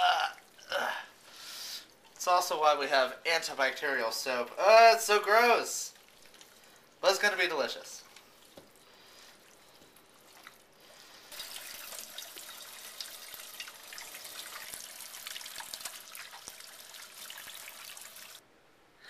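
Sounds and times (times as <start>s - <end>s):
hands washing under water: 5.0s - 18.4s.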